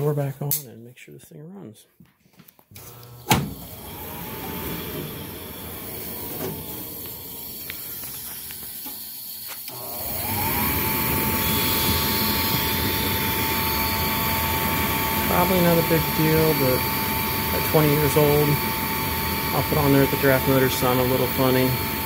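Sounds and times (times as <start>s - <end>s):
furnace motor whining: 2.7s - 22.0s
loud metal clunk: 3.2s - 3.6s.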